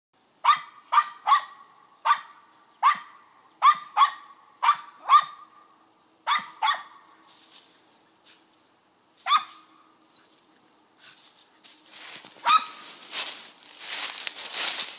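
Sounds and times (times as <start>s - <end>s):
dog barking: 0.4s - 5.5s, 6.3s - 7.0s, 9.2s - 9.7s, 12.4s - 12.8s.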